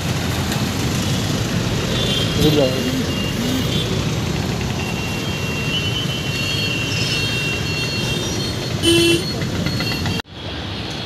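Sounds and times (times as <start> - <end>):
road traffic passing: 0.0 - 11.0.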